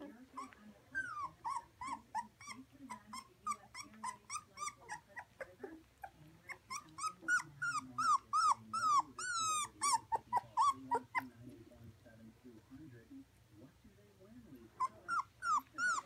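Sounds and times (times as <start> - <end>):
puppies crying: 0.0 - 11.3, 14.8 - 16.0.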